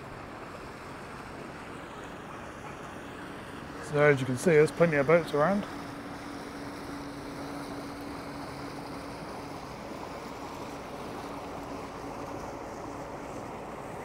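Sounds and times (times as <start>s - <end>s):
motor boat engine humming: 0.0s - 14.0s.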